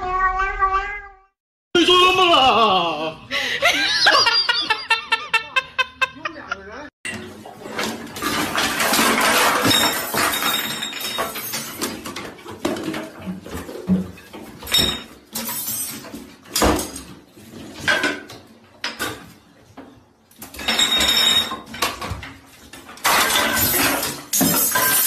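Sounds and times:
objects clattering on hard surfaces: 7.1 - 25.0
objects rattling: 7.1 - 25.0.

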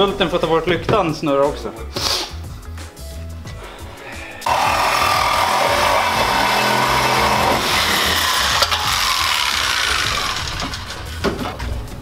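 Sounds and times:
angle grinder cutting metal: 4.4 - 11.2.

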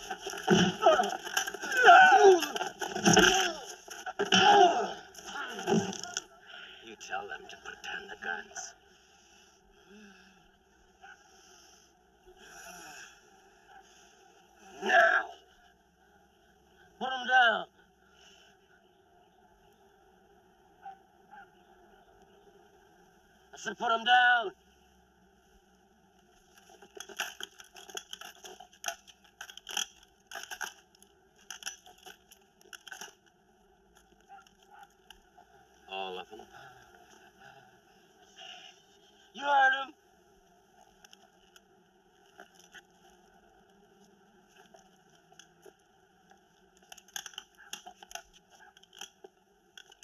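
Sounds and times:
guns clattering as dropped: 0.0 - 4.1, 26.6 - 33.2, 46.9 - 49.2.

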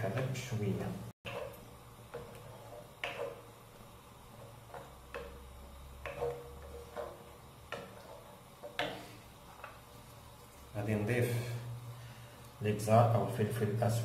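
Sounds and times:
wooden spoon knocking on frying pan: 1.3 - 3.6, 4.4 - 9.8.

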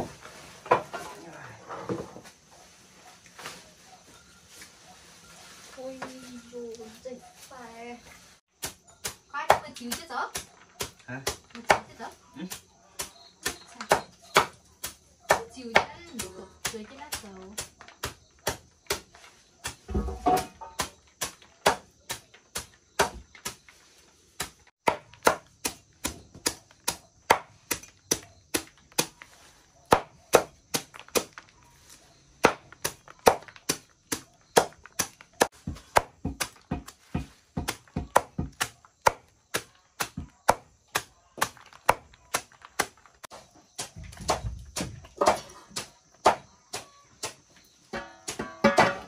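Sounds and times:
machete chopping on wooden board: 8.6 - 11.9, 12.5 - 19.1, 19.7 - 23.6, 24.4 - 29.2, 29.8 - 31.3, 32.4 - 49.0.

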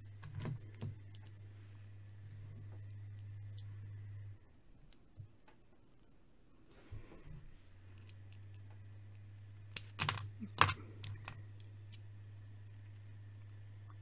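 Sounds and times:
low steady hum: 0.0 - 14.0
plastic bricks clicking: 9.7 - 12.0.

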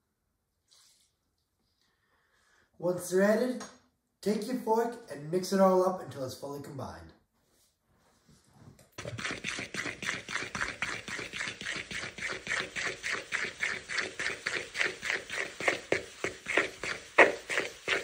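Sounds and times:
fork scraping dough in bowl: 9.0 - 18.0.

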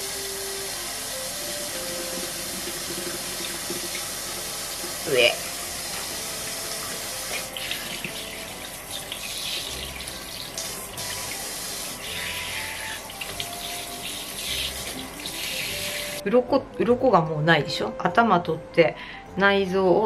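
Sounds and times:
tap running into sink: 1.6 - 12.0.

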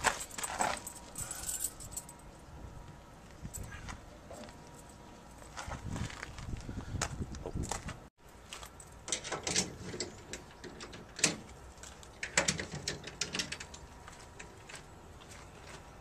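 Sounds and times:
footsteps on asphalt: 5.3 - 8.8, 14.0 - 16.0.

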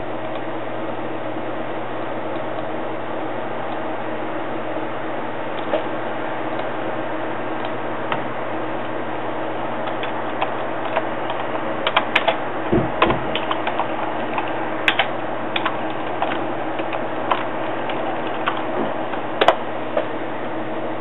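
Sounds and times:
steady hum and hiss: 0.0 - 21.0
low thump: 12.7 - 13.3.

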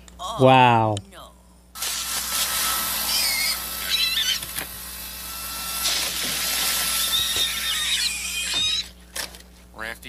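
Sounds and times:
leaf blower running: 1.8 - 8.9
pigs squealing: 2.5 - 4.6, 5.3 - 9.0.

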